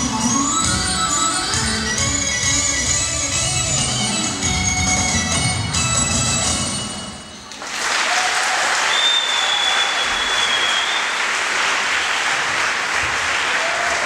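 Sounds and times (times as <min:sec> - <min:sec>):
music: 0:00.0 - 0:07.6
audience applause: 0:07.5 - 0:14.0
long high whistle: 0:08.9 - 0:11.2.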